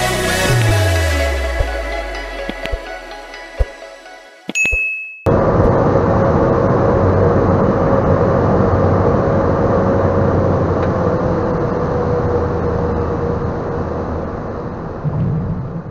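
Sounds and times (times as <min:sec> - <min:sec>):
turboprop engine drone: 0:05.3 - 0:15.9.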